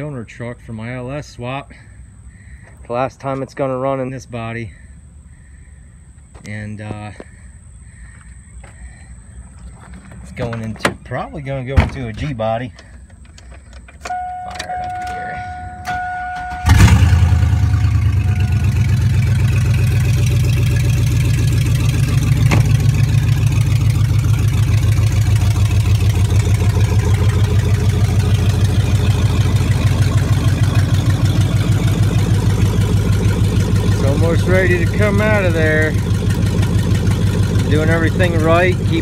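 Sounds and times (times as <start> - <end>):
truck engine starting and idling: 0.0 - 39.0
steady electronic tone: 14.1 - 21.0.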